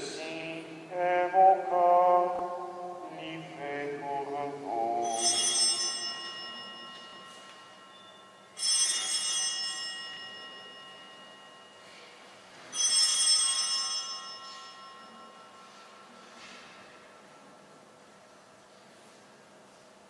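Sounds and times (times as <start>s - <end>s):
altar bell ringing: 5.0s - 12.1s, 12.7s - 16.3s.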